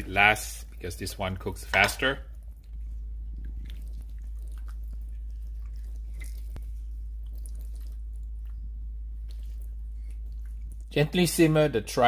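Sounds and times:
steady low hum: 0:00.0 - 0:12.0
wet squelching of meat: 0:02.4 - 0:11.0.

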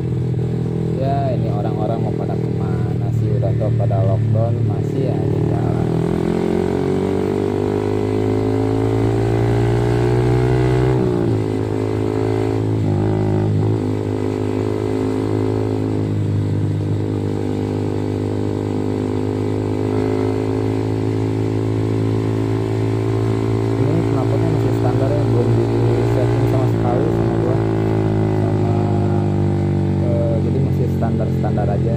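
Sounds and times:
motorcycle exhaust accelerating: 0:00.0 - 0:31.9.

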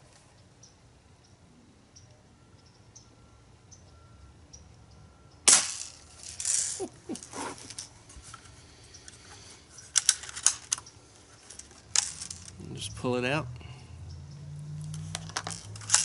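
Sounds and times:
handling noise: 0:05.5 - 0:12.7, 0:14.8 - 0:16.0.

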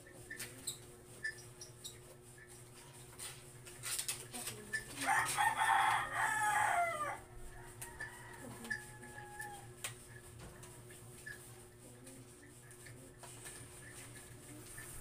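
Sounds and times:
rooster crowing: 0:05.0 - 0:09.8.

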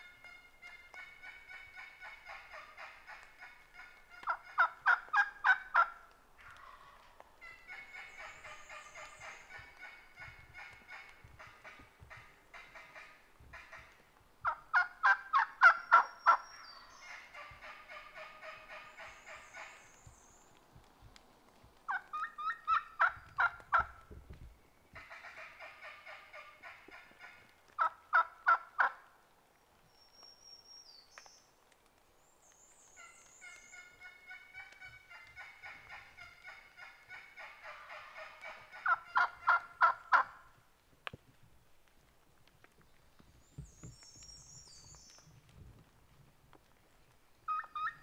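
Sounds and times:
wild turkey calling: 0:00.0 - 0:20.6, 0:21.8 - 0:24.1, 0:24.9 - 0:29.2, 0:32.9 - 0:40.6, 0:47.4 - 0:48.0.

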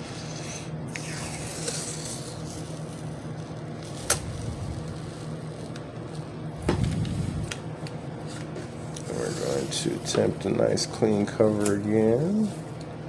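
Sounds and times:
steady low hum: 0:00.0 - 0:13.0
tape peeling and rustling: 0:00.2 - 0:10.4.

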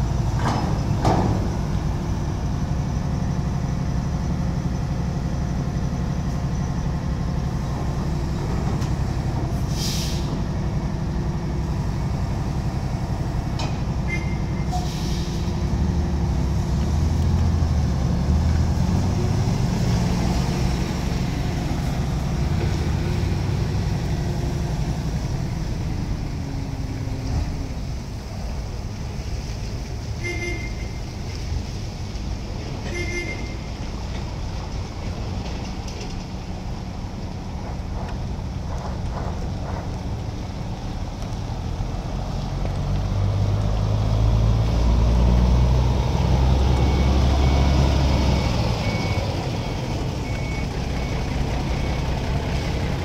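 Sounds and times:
diesel engines running: 0:00.0 - 0:53.0
hisses of air: 0:09.6 - 0:10.5, 0:14.7 - 0:15.6.

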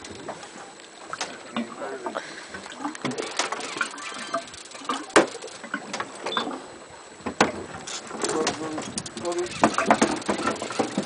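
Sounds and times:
fishing reel clicking: 0:03.1 - 0:06.2, 0:07.9 - 0:11.0.

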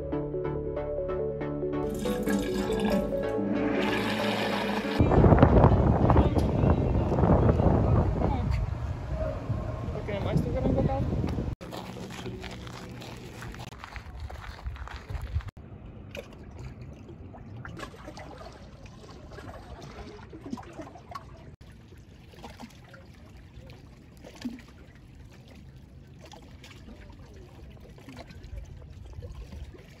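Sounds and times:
low rumble: 0:03.1 - 0:11.6
small waves lapping: 0:11.6 - 0:30.0.

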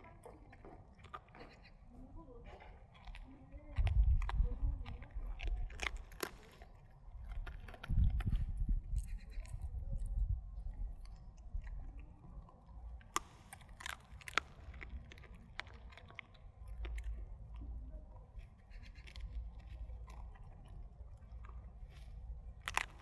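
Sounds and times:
dog gnawing bone: 0:00.0 - 0:01.9, 0:02.6 - 0:23.0
bone crunching: 0:02.8 - 0:09.6, 0:13.0 - 0:17.6, 0:18.4 - 0:23.0.

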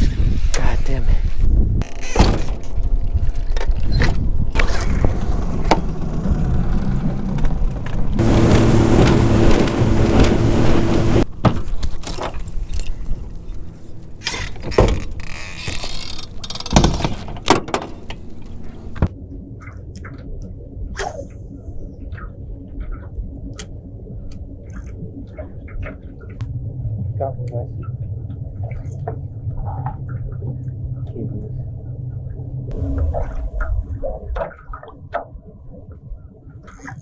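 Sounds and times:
electric trolling motor humming: 0:08.2 - 0:11.3.

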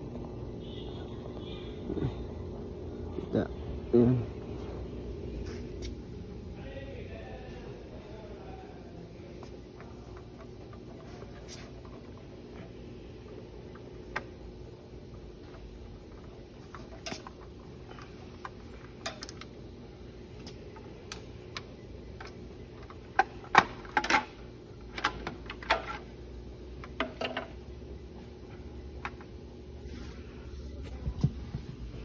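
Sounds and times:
steady hum: 0:00.0 - 0:32.0.

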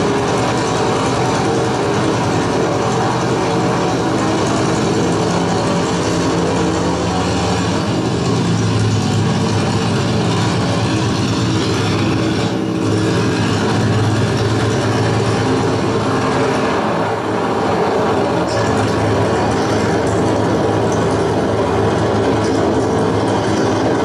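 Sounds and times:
piston aircraft engine droning: 0:00.0 - 0:24.0.

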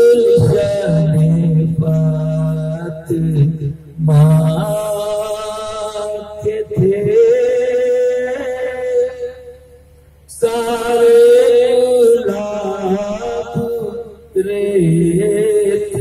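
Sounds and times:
man chanting: 0:00.0 - 0:16.0.

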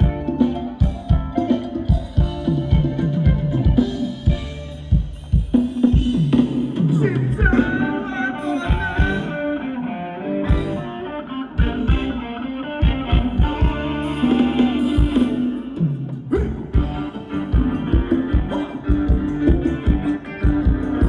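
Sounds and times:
live band dance music: 0:00.0 - 0:21.0.

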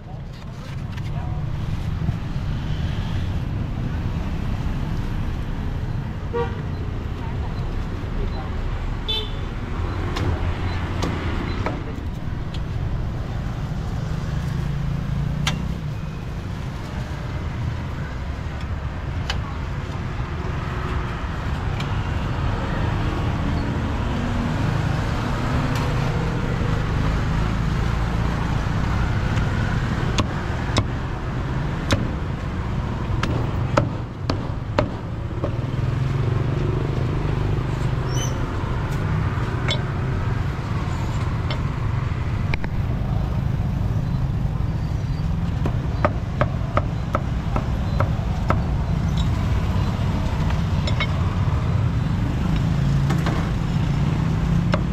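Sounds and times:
traffic passing: 0:00.0 - 0:54.9
sharp clicks and knocks: 0:50.4 - 0:51.2.

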